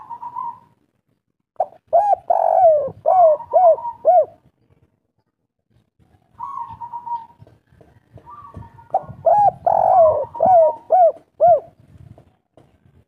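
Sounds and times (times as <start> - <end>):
dove cooing: 0.0 - 0.7, 1.6 - 4.5, 6.4 - 7.5, 8.2 - 11.8.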